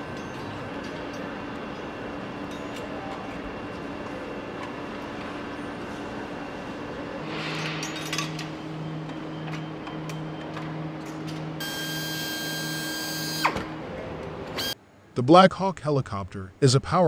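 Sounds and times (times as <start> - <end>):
machinery hum: 0.0 - 17.0
clinks of tools: 0.1 - 3.4, 7.4 - 8.6.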